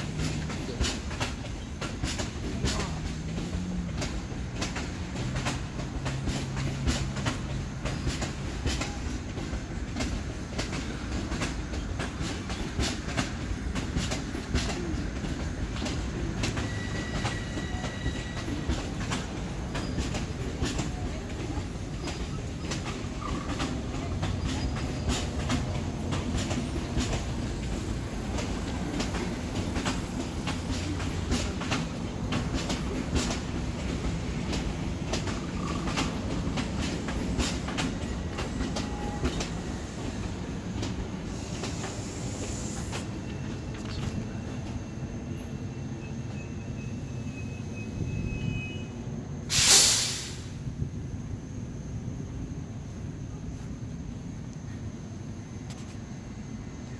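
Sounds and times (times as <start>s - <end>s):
wheels clattering over rail joints: 0.0s - 40.1s
train low rumble and hum: 0.0s - 56.9s
high-pitched wheel squeal: 16.6s - 18.6s.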